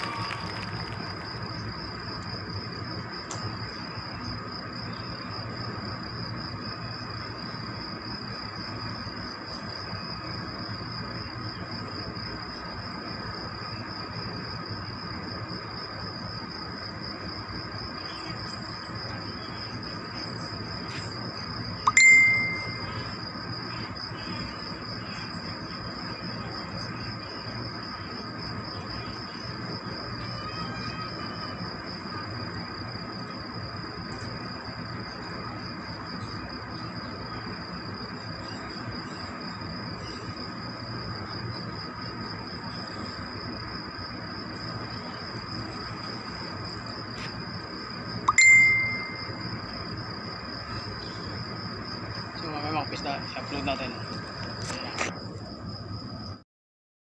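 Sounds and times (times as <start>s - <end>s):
high-pitched trill: 21.9s - 22.9s
sharp metallic ding: 21.9s - 22.9s, 48.3s - 49.3s.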